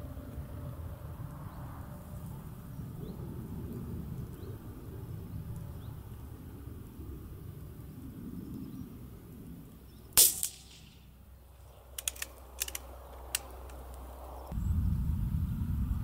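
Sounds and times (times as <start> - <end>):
rifle shot: 10.2 - 11.2
rifle bolt clicks: 11.9 - 14.0.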